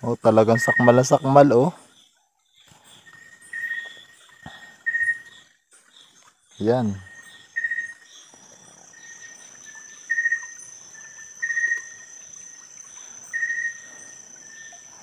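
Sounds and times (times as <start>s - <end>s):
high-pitched insect whine: 0.0s - 15.0s
loud short insect trill: 6.6s - 15.0s.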